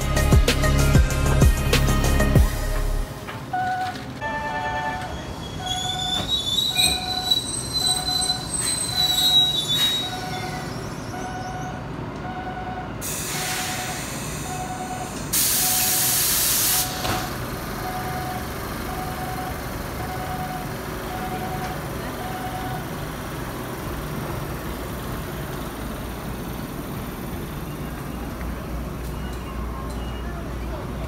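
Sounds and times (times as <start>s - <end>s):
high metallic train squeal: 4.6s - 11.8s, 13.0s - 17.0s
train air brakes hissing: 5.3s - 11.1s, 13.0s - 17.3s.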